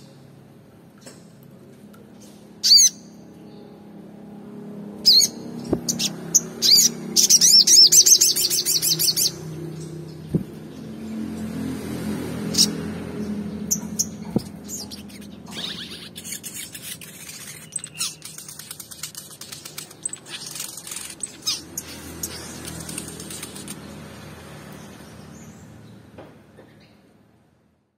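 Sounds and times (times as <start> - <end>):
bird chirping and trilling: 2.6 - 3.8, 5.0 - 11.2, 12.4 - 24.1.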